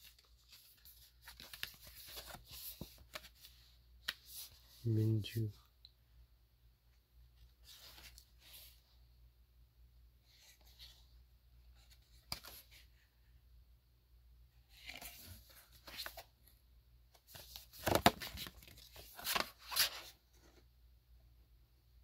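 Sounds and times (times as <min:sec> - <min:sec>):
paper rustles and scrapes: 0:00.0 - 0:04.8, 0:17.3 - 0:20.5.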